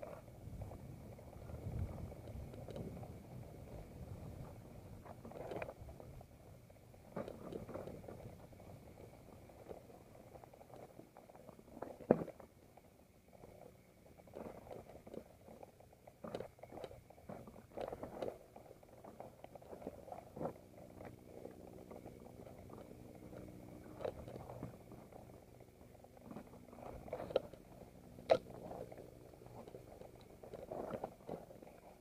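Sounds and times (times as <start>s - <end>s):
tyres crunching on gravel: 16.4s - 32.0s.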